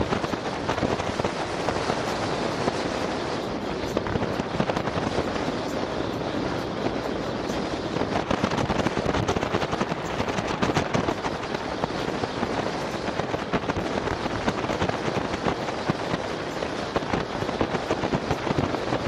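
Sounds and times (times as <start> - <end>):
crackling wind rush: 0.0 - 19.0
road noise: 0.0 - 19.0.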